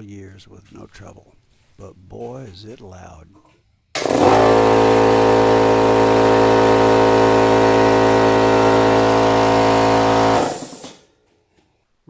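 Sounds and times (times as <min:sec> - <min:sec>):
air compressor running: 0:04.0 - 0:11.1.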